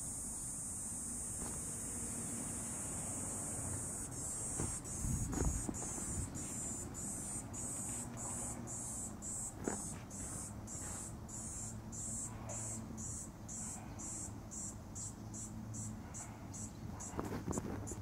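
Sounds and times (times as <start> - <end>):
cicada buzzing pulses: 0.0 - 18.0.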